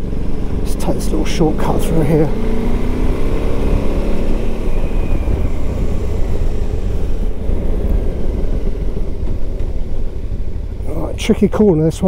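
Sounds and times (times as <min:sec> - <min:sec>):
motorcycle engine running: 0:00.0 - 0:12.0
wind rumble on microphone: 0:02.3 - 0:10.9.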